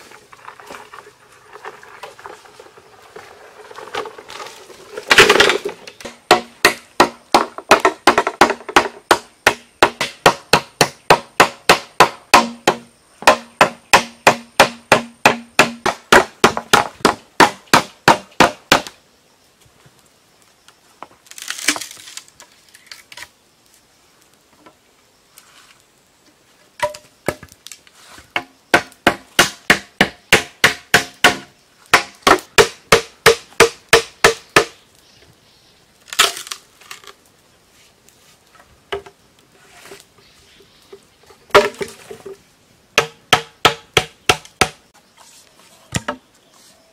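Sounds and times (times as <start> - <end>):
tool striking hollow bamboo pole: 5.1 - 19.0, 28.4 - 34.8, 41.5 - 42.0, 43.0 - 44.8.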